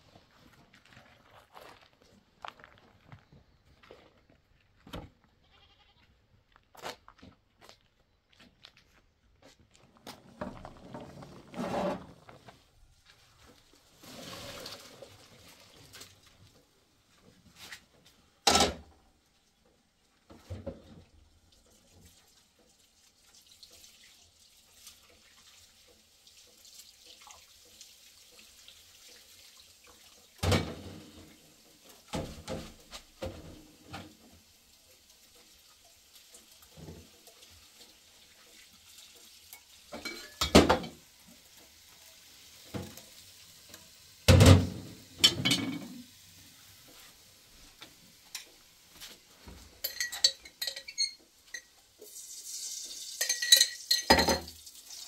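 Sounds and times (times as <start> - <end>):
faint steady hiss: 10.0 - 55.0
dishes and pots clanking: 18.4 - 18.8, 30.4 - 31.2, 39.5 - 41.0, 44.3 - 46.1, 49.5 - 51.8, 53.1 - 54.6.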